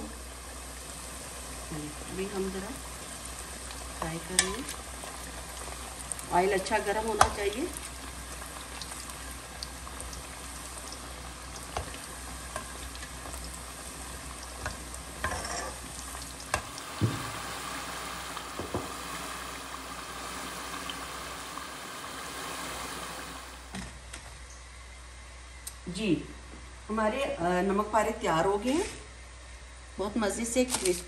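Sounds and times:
dough sizzling in hot oil: 0.0s - 23.8s.

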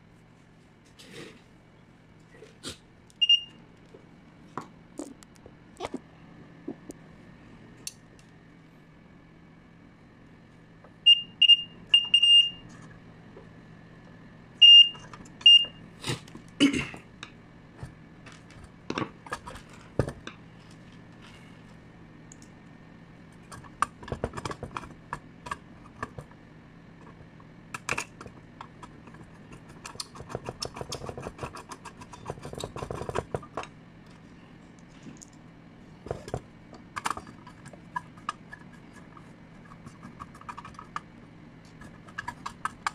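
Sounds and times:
short electronic beeps: 3.2s - 3.6s.

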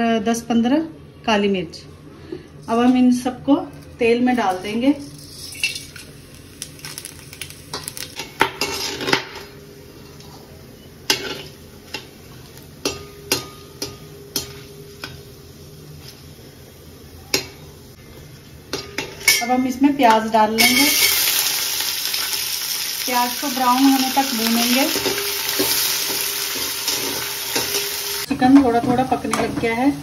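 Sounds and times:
spices sizzling in oil: 4.6s - 10.1s, 19.0s - 28.3s
metal spatula clinking on pot: 12.8s - 15.2s.

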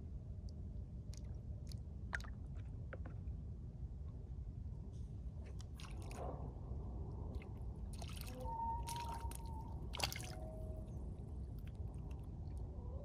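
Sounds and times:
water lapping: 7.9s - 10.6s.

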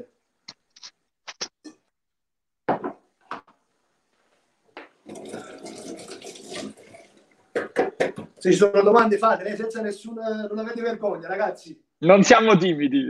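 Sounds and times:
hands rinsed under water: 4.9s - 8.5s.

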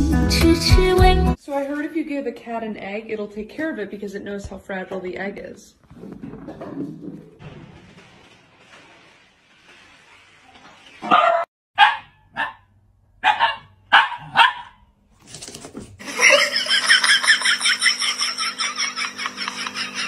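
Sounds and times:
dog barking: 11.0s - 14.8s.

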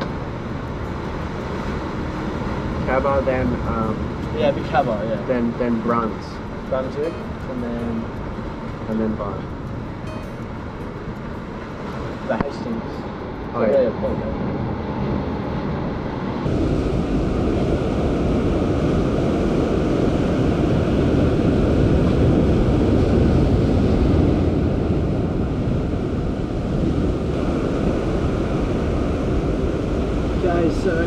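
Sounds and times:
ocean waves: 0.0s - 31.0s
wind buffeting microphone: 0.0s - 31.0s
wind rushing: 14.5s - 31.0s.

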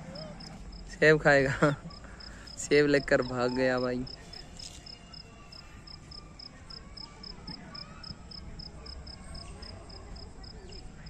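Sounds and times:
cricket chirping: 7.7s - 10.9s.

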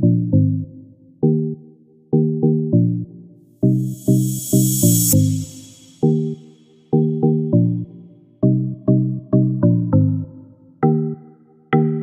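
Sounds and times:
synthesizer melody of plucked notes: 7.0s - 12.0s.

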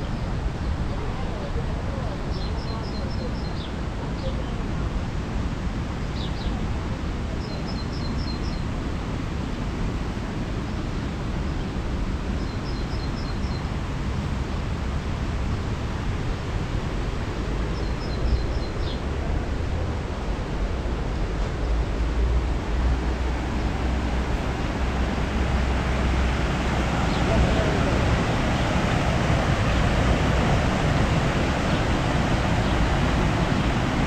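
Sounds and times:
steady rushing outdoor noise: 0.0s - 34.0s
songbird chirping: 23.2s - 28.8s.

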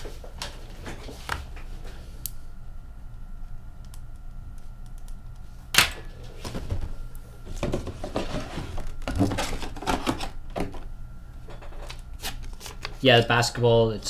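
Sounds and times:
cardboard and plastic rustling: 6.3s - 10.9s.

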